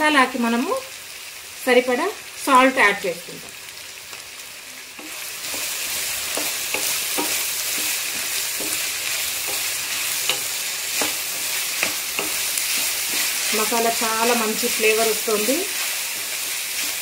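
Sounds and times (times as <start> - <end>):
food sizzling in oil: 0.0 - 17.0
spatula scraping pan: 5.0 - 17.0.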